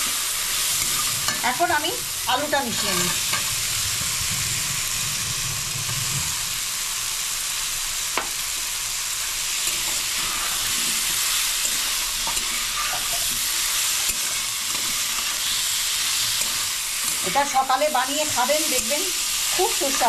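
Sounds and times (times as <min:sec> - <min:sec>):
potatoes sizzling in a pan: 0:00.0 - 0:20.0
spatula scraping a pan: 0:09.6 - 0:20.0.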